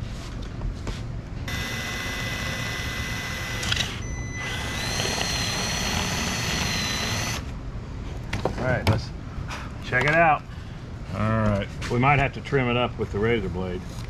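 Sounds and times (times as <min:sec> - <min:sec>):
electric drill whining: 0:01.5 - 0:07.5.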